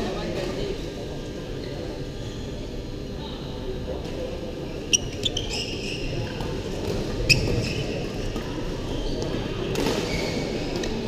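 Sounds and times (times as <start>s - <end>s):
shoes squeaking on court: 4.8s - 8.2s, 8.8s - 10.8s.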